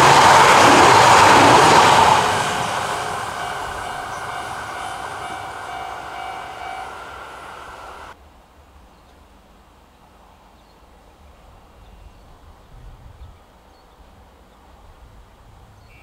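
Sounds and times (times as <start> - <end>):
high-speed train passing: 0.0 - 8.2.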